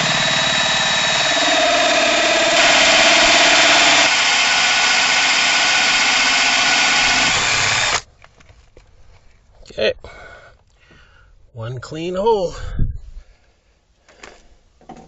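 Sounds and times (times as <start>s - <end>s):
cordless drill cutting metal: 0.0s - 8.0s.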